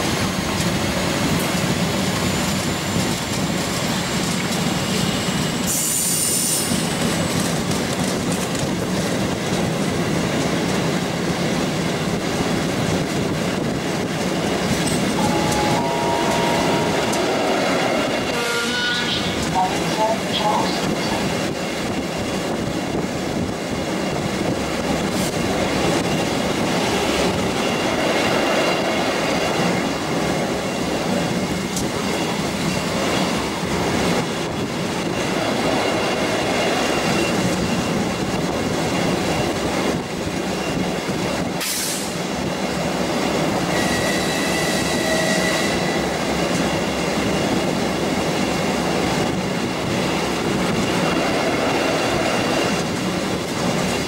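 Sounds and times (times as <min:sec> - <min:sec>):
train wheels rumbling on rail: 0:00.0 - 0:54.0
train wheel squeal: 0:01.4 - 0:07.6, 0:14.8 - 0:19.5, 0:25.3 - 0:29.4, 0:35.0 - 0:39.8, 0:40.5 - 0:42.2, 0:43.6 - 0:47.7.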